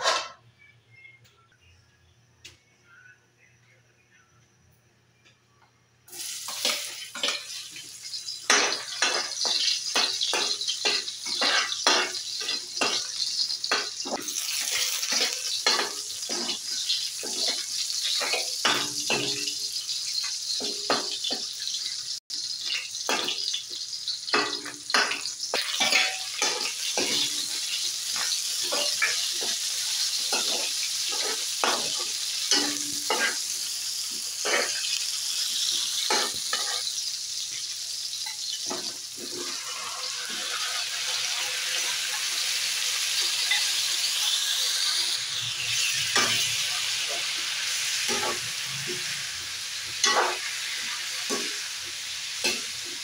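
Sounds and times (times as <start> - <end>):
vegetables sizzling in hot oil: 6.1 - 53.0
metal spoon scraping a wok: 35.6 - 36.9.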